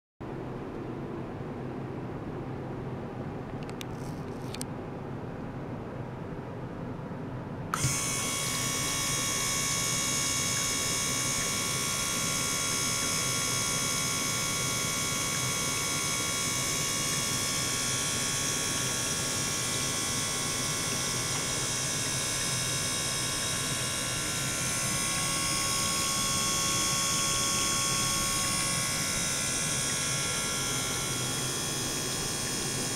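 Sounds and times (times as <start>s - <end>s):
gear pump running: 7.7s - 32.9s
water circulating hiss: 7.8s - 32.9s.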